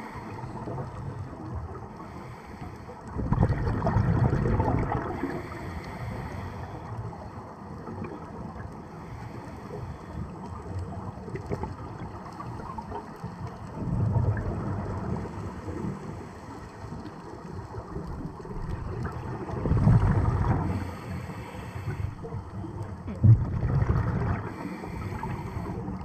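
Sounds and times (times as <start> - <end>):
underwater exhalation bubbles: 3.2 - 5.5, 13.8 - 15.3, 18.3 - 20.9, 22.9 - 24.7.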